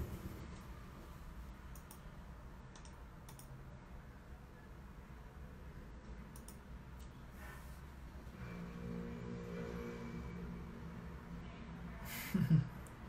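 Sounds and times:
low steady hum: 0.0 - 13.0
computer keyboard clicks: 1.7 - 2.1, 2.7 - 3.6, 6.3 - 7.2.

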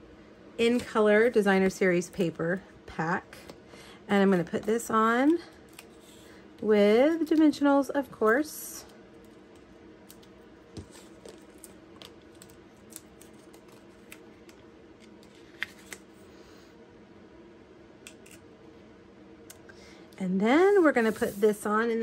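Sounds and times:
faint steady hum: 0.0 - 22.0
small clicks and paper rustles: 9.2 - 16.1.

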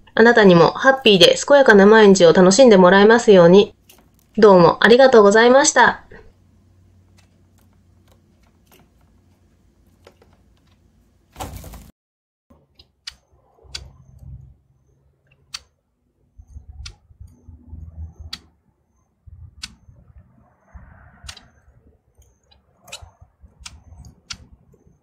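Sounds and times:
finches clicking and pecking: 12.7 - 15.8, 16.4 - 18.6, 19.3 - 25.0
low rumble: 19.2 - 22.1.

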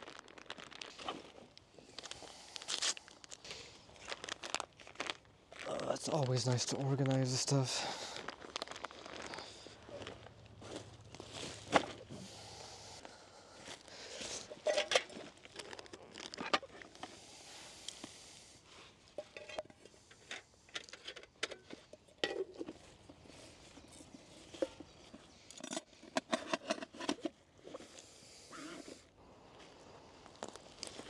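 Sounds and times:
gear bags rustling: 0.0 - 17.2
footsteps on dry leaves: 2.0 - 14.5.

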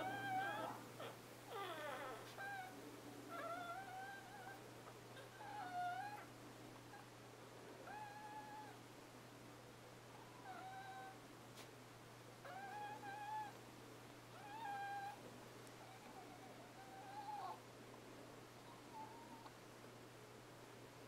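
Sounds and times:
puppies whining: 0.0 - 6.3, 7.8 - 8.8, 10.2 - 11.2, 12.4 - 13.6, 14.3 - 15.2, 15.8 - 17.6, 18.6 - 19.5.

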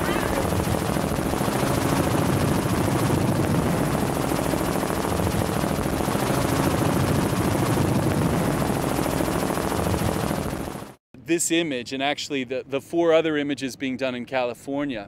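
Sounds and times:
helicopter engine drone: 0.0 - 11.0
helicopter rotor chop: 0.0 - 11.0.

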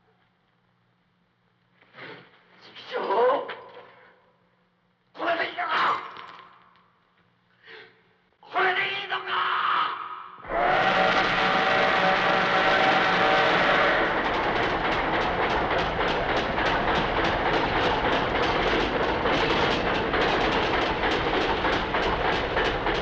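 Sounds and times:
train whistle chord: 10.4 - 15.8
train wheels clacking over rail joints: 10.5 - 23.0.

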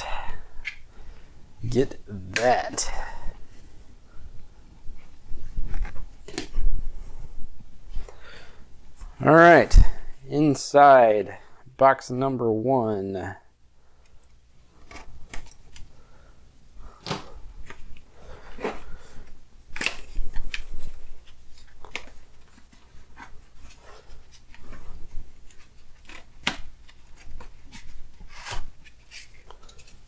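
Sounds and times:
cardboard packaging clicks and scrapes: 25.4 - 30.0.

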